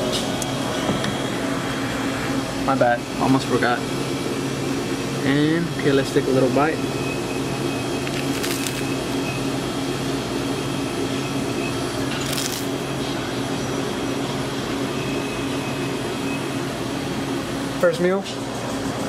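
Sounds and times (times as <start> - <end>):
steady machine hum: 0.0 - 19.0
rice cake crunching: 8.1 - 8.9, 12.2 - 12.7.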